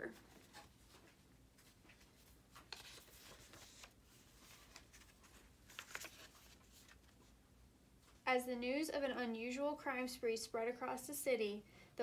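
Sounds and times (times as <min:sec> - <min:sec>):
paper pages rustling: 0:00.1 - 0:07.4.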